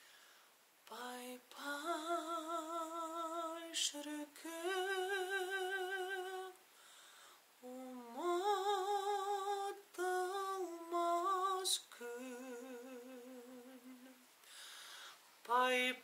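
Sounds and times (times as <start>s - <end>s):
man singing a cappella: 0.8s - 6.6s, 7.6s - 14.2s, 15.4s - 16.0s.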